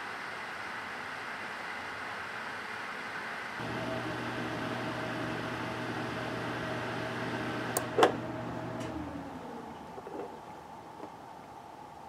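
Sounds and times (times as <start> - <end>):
relay clicking off: 3.6 - 9.3
cooling fan humming: 3.6 - 10.0.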